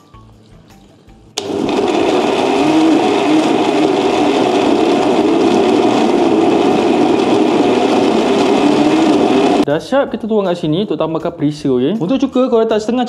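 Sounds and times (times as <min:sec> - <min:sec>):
blender motor running: 0:01.4 - 0:09.7.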